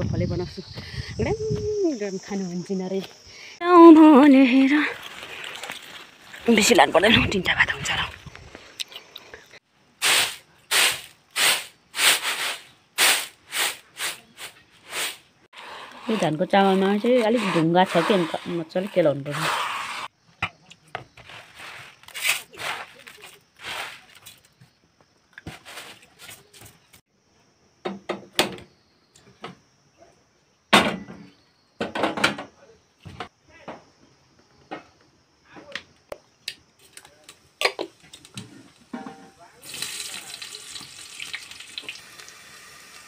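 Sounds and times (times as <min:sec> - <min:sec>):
rice grains swishing and rattling: 0:10.0 - 0:18.6, 0:21.4 - 0:24.3.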